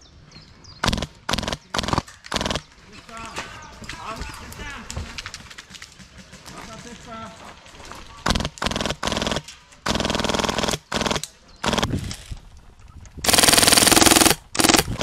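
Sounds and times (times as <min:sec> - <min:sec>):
toy machine gun firing bursts: 0:00.8 - 0:02.6, 0:08.3 - 0:12.0, 0:13.2 - 0:15.0.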